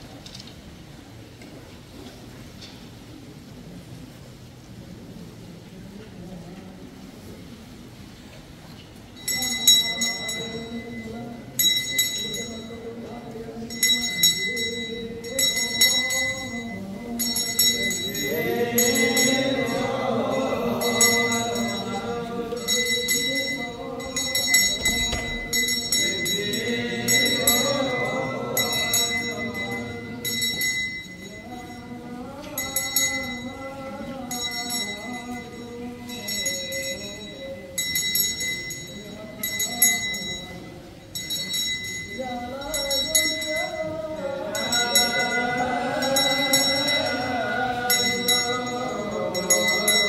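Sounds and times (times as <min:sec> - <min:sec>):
small bells jingling: 0:09.2 - 0:50.0
voices chanting: 0:09.3 - 0:35.2, 0:42.5 - 0:50.0.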